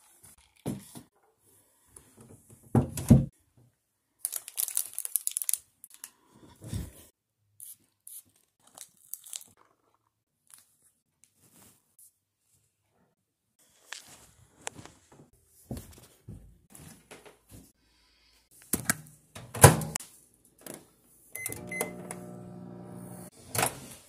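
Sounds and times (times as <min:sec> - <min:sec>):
plastic wrapper crinkling: 0:04.2 - 0:06.1, 0:08.4 - 0:10.7.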